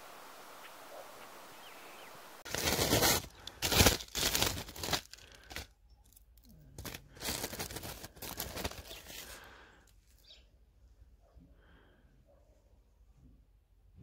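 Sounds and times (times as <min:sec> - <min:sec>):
fingers scraping frost ice: 0:02.5 - 0:05.7, 0:06.8 - 0:09.5.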